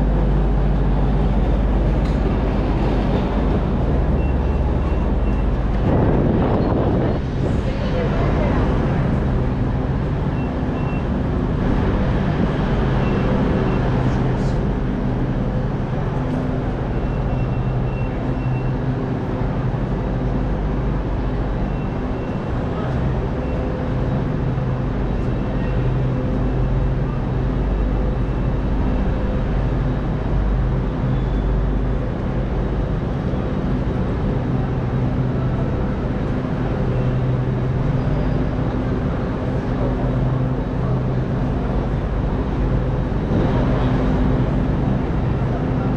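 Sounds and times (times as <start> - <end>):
constant wash of noise: 0.0 - 45.9
low mechanical hum: 0.0 - 45.9.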